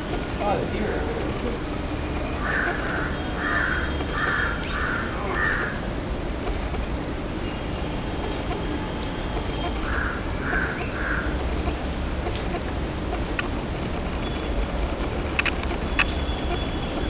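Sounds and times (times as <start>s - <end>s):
steady background noise: 0.0s - 17.0s
bird calling: 2.2s - 5.9s, 9.4s - 12.7s.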